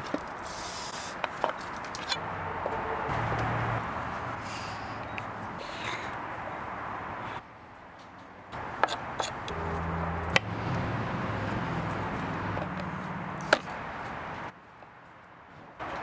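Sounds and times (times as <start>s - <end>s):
low hum: 9.5s - 14.4s.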